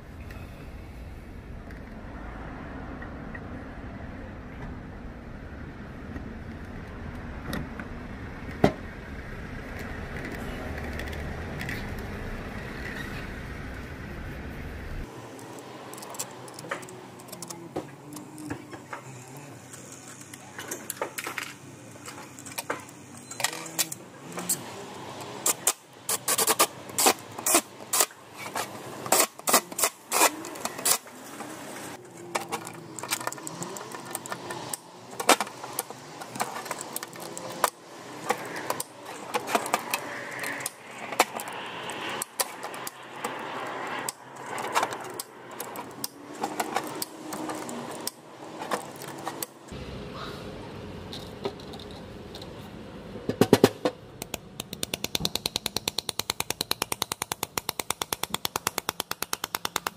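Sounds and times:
small metal parts clinking: 32.0 - 40.8.

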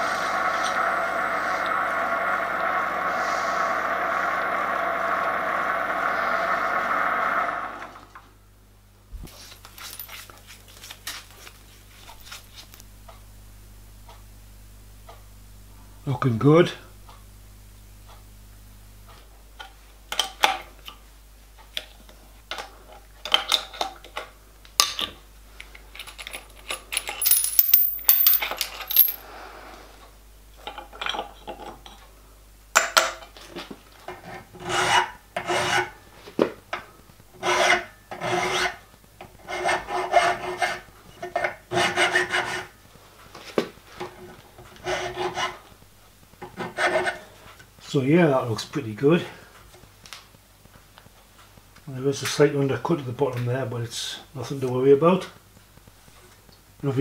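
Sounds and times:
metal parts clicking and knocking: 26.0 - 29.2
hand file on metal: 37.4 - 38.8, 39.4 - 42.7, 44.8 - 45.6, 46.6 - 47.3.

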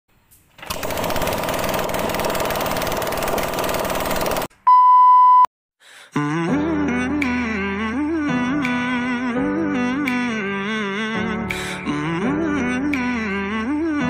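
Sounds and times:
electronic beep: 4.7 - 5.5.

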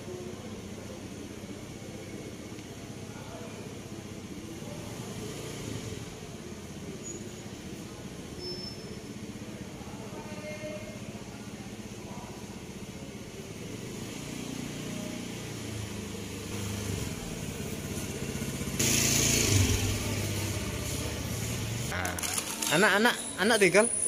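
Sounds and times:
motorcycle engine running: 12.8 - 22.7.

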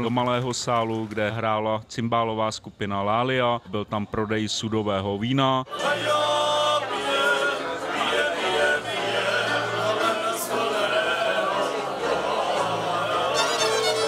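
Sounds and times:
men singing together: 5.7 - 14.0
violins: 6.8 - 14.0.

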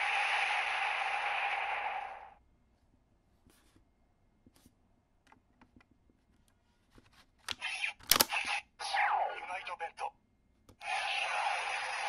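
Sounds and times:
electronic hiss with a tone: 0.0 - 2.4.

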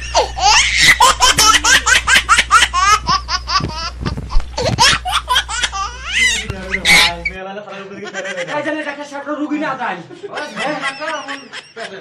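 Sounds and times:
high-pitched laughter: 0.0 - 4.0, 10.3 - 12.0
steady low hum: 0.0 - 7.4.

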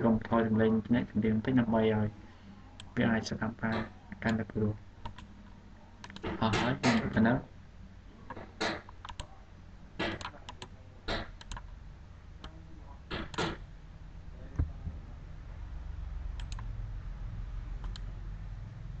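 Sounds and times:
low hum: 0.0 - 19.0
computer mouse and keyboard clicks: 6.0 - 7.2, 10.0 - 11.7, 12.4 - 13.6, 16.4 - 16.7, 17.8 - 18.1.

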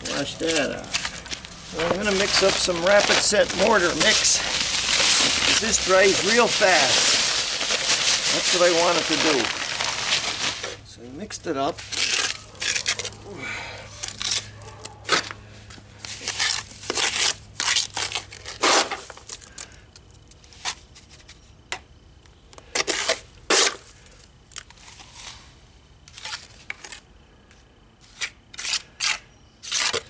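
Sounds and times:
trowel scraping wet mortar: 28.0 - 30.0.

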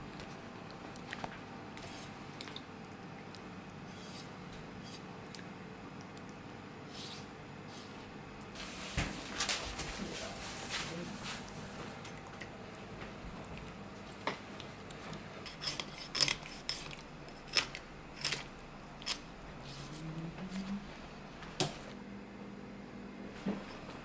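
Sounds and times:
knife scraping and slicing fish: 1.8 - 2.2, 3.9 - 5.1, 15.4 - 20.1.

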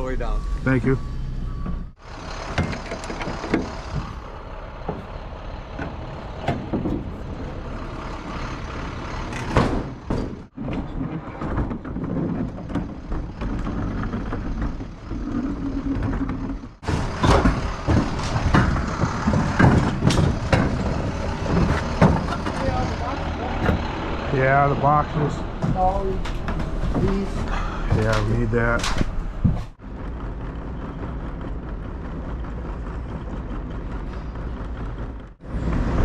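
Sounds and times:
engine idling: 0.0 - 10.6, 12.7 - 36.0
trailer ramp door clunking: 1.6 - 8.0, 9.0 - 29.8.

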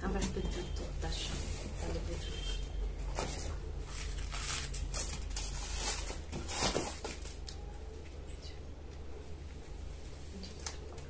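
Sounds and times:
paper packing rustling: 3.0 - 7.6.

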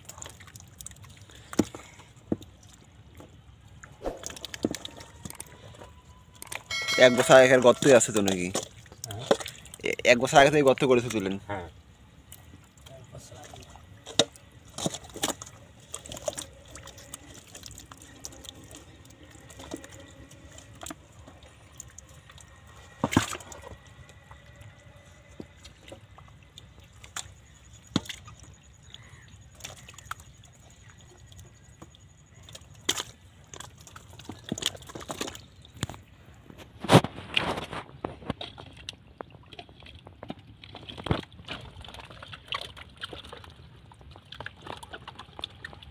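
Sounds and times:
mud and water sloshing: 0.0 - 45.9
metal bowls knocking: 6.7 - 8.3.

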